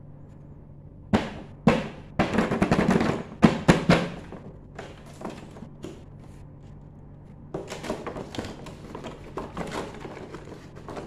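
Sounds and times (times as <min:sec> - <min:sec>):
hands knocking on cardboard box: 0:01.1 - 0:06.0
crackly handling of box: 0:07.6 - 0:11.0.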